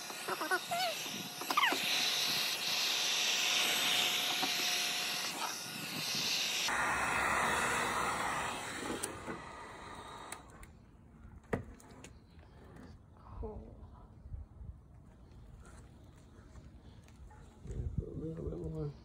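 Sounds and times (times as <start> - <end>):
heat gun hissing: 0.0 - 10.7.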